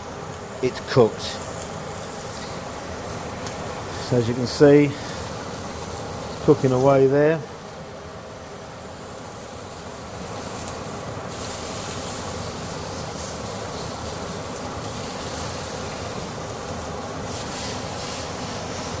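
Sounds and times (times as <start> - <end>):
chicken sizzling on griddle pan: 0.0 - 19.0.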